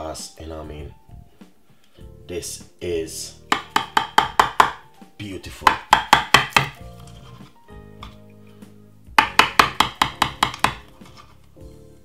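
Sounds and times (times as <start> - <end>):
soft background music: 0.0 - 12.0
knife tapping ceramic dish: 3.5 - 4.8, 9.2 - 10.8.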